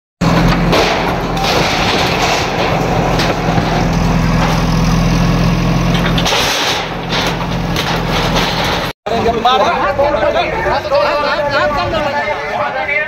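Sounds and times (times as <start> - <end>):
diesel engine running: 0.2 - 8.9
metal sheets scraping and crashing: 0.2 - 8.9.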